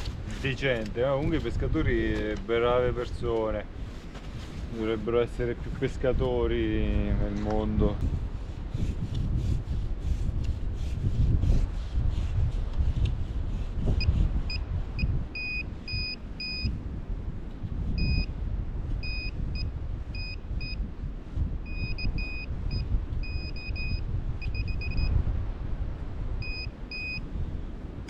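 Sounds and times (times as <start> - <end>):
pinpointer short high beeps: 21.7 - 25.1, 26.4 - 27.2.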